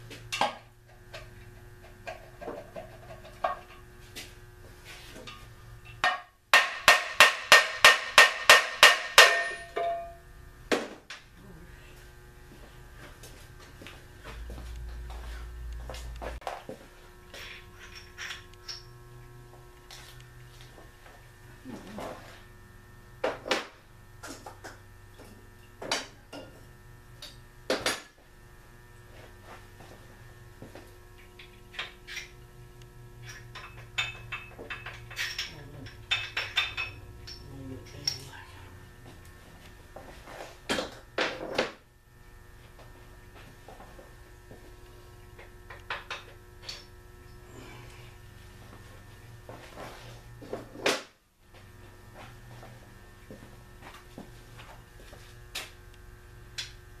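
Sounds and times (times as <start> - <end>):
steady electrical hum: 0.0 - 57.0
hand tools clanking on metal: 8.2 - 10.2.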